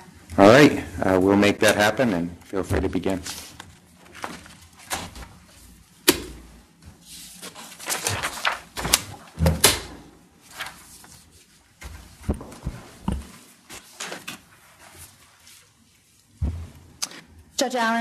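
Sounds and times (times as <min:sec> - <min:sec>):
papers rustling: 0:03.1 - 0:05.8, 0:06.9 - 0:12.9
knocks and thuds on lectern: 0:16.4 - 0:16.7.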